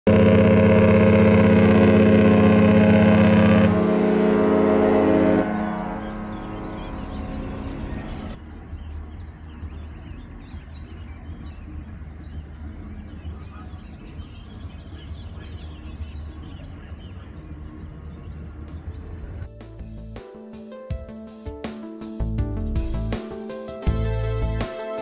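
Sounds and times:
small birds chirping: 0:05.8 - 0:20.2
music: 0:06.3 - 0:25.0.

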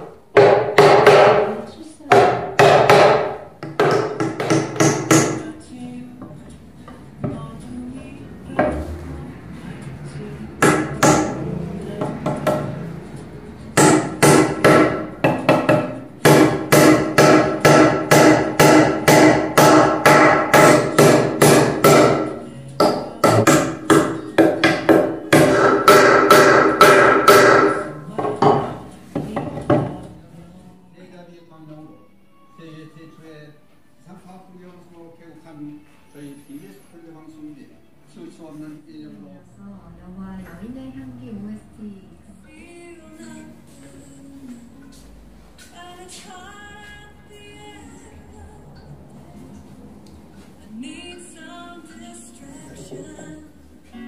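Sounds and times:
mallet strikes on wood: 0:00.3 - 0:01.5, 0:02.1 - 0:05.4, 0:10.6 - 0:11.4, 0:12.0 - 0:12.7, 0:13.8 - 0:30.0.

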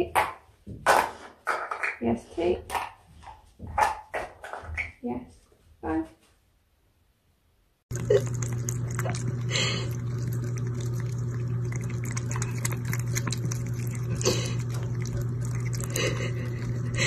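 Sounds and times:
cat lapping water: 0:07.9 - 0:17.0
faucet running: 0:07.9 - 0:17.0
low hum: 0:07.9 - 0:17.0.

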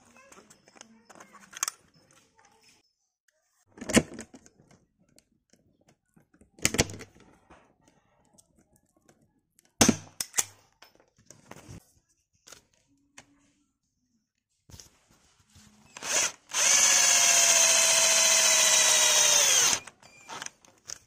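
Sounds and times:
drill knocking against wood: 0:16.0 - 0:19.9.

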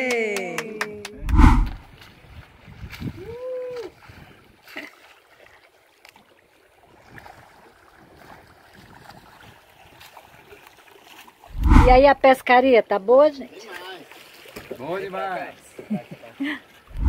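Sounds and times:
sea water around a boat: 0:00.0 - 0:17.0
faint wind: 0:00.5 - 0:04.7, 0:11.4 - 0:13.5, 0:16.6 - 0:17.0
person whooping: 0:03.2 - 0:04.0.

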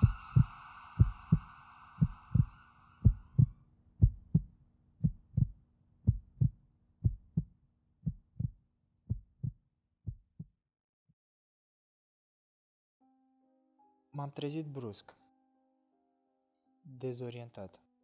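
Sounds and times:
heartbeat thumps: 0:00.0 - 0:10.5.

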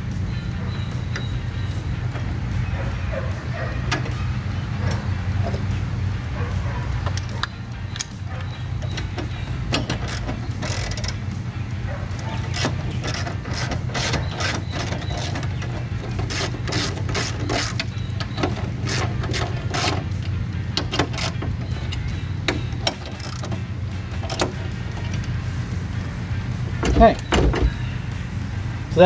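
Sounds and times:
socket ratchet clicking: 0:09.7 - 0:11.2, 0:20.7 - 0:23.6.

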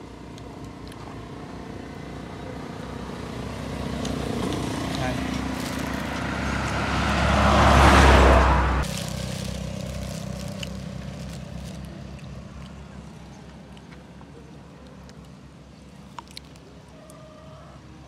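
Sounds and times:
truck passing close by: 0:01.2 - 0:13.4.

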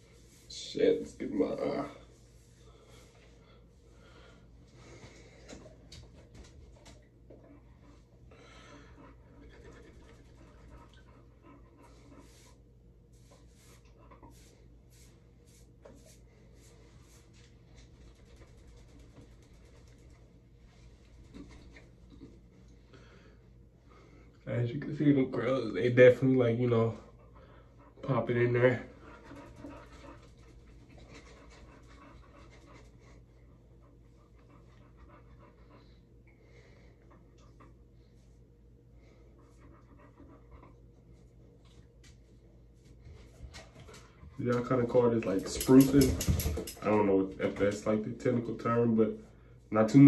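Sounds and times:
towel rubbing on face and hair: 0:12.2 - 0:21.3.

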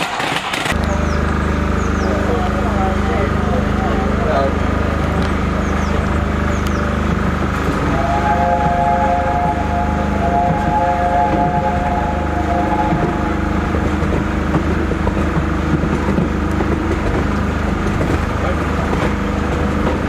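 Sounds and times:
train rumble: 0:00.0 - 0:20.0
locomotive chime whistle: 0:07.8 - 0:13.6.

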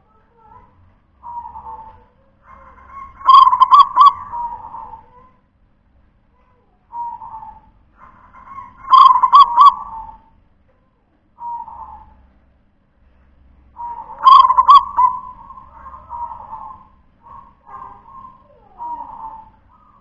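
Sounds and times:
dove cooing: 0:01.2 - 0:05.3, 0:06.9 - 0:10.3, 0:11.4 - 0:12.2, 0:13.8 - 0:20.0.

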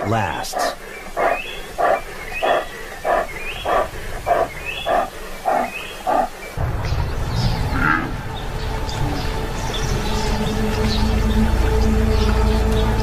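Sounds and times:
background music: 0:06.6 - 0:13.0.

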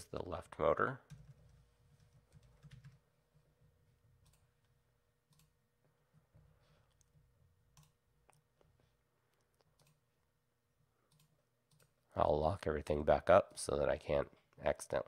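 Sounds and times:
computer mouse and keyboard clicks: 0:09.5 - 0:10.0.

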